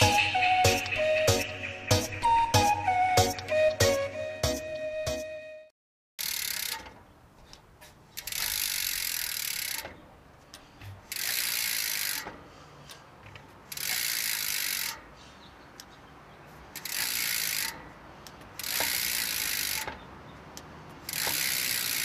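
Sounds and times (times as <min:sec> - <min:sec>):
bike hub ratcheting buzz: 0:06.2 - 0:07.0, 0:08.1 - 0:10.0, 0:11.0 - 0:12.5, 0:13.6 - 0:15.1, 0:16.7 - 0:18.0, 0:18.6 - 0:22.0.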